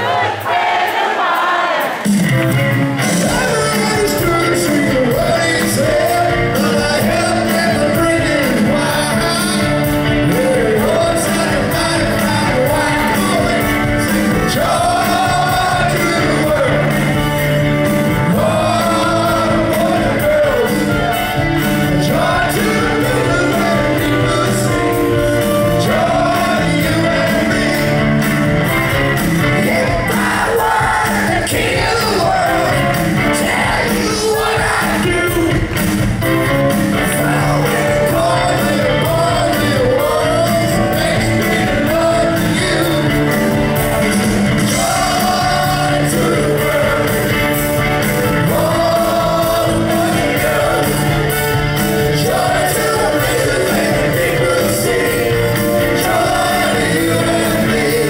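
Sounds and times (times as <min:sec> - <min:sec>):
live rock band with singer: 0:00.0 - 0:58.0.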